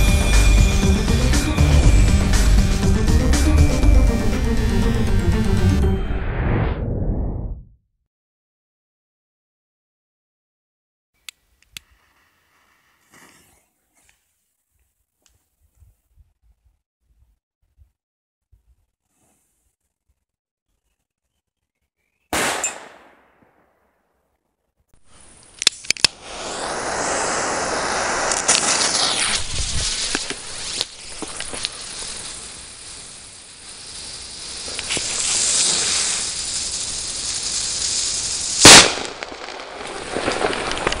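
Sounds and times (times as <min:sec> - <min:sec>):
firecracker bang: 0:22.4 - 0:23.6, 0:26.1 - 0:31.7, 0:38.5 - 0:41.0
fuse hissing and sputtering: 0:25.0 - 0:40.9.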